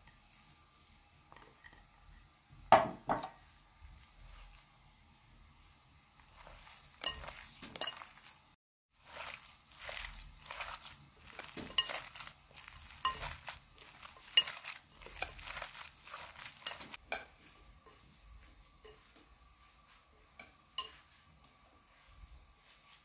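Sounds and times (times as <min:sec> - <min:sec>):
wet squishing of kneaded meat: 0:00.0 - 0:01.3, 0:03.4 - 0:05.0, 0:05.6 - 0:17.1
clinks against glass bowl: 0:07.0 - 0:08.1, 0:20.8 - 0:21.0.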